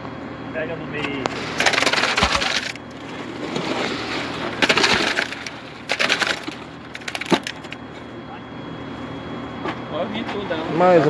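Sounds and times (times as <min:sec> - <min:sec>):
concrete scraping down a chute: 0:01.3 - 0:07.6.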